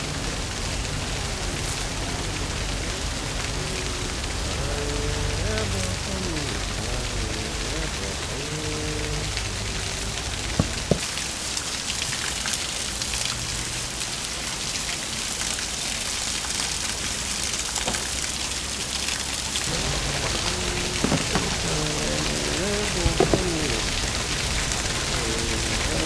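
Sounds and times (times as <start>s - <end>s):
waterfall splashing onto rocks: 0.0s - 26.0s
sharp knocks: 10.6s - 11.1s.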